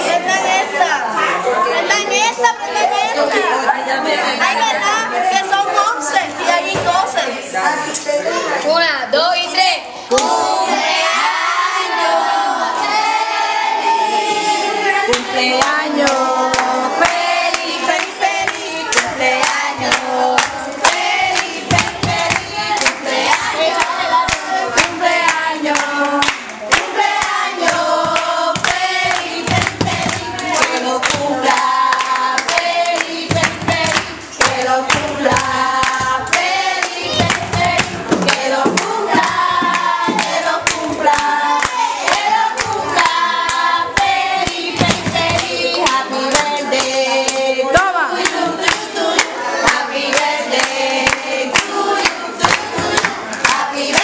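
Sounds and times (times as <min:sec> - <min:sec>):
girls singing together: 0:00.0 - 0:54.0
hands clapping: 0:15.1 - 0:54.0.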